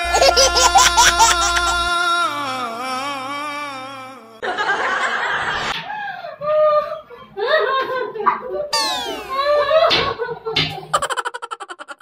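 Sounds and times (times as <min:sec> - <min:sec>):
woman laughing: 0:00.0 - 0:01.9, 0:06.4 - 0:12.0
woman wailing: 0:00.0 - 0:04.4, 0:08.8 - 0:09.8.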